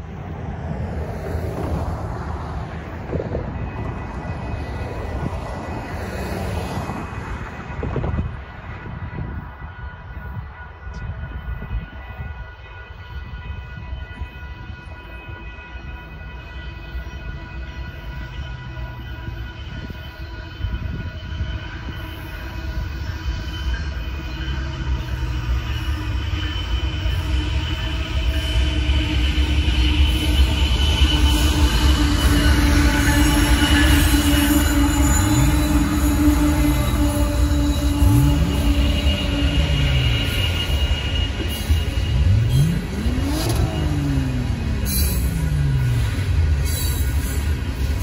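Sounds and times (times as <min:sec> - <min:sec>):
railroad crossing warning bell: 0:00.0 - 0:48.0
road traffic rumble: 0:00.0 - 0:48.0
wind on microphone: 0:06.6 - 0:12.4.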